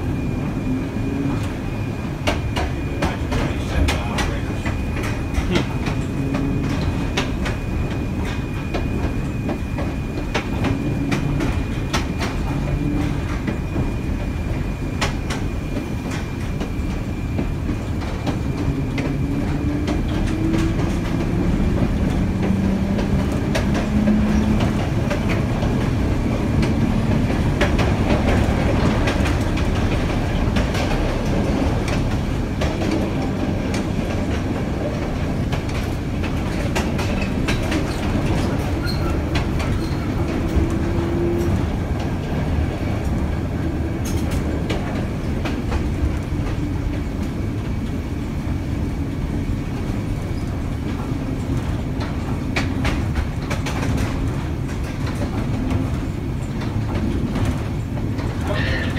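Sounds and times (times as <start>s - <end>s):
streetcar wheels rumbling: 0.0s - 58.9s
wheels clicking over rail joints: 2.2s - 48.0s, 48.8s - 58.9s.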